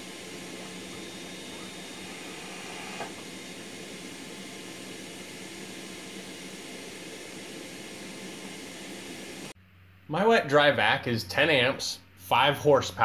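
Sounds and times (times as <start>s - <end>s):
shop vacuum running: 0.0s - 9.6s.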